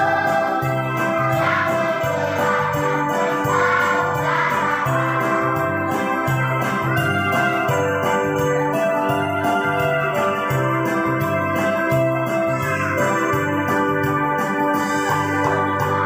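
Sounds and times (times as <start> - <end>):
children's choir singing hymn: 0.0 - 7.8
electronic keyboard organ accompaniment: 0.0 - 16.0
steady rhythm beat: 0.0 - 16.0.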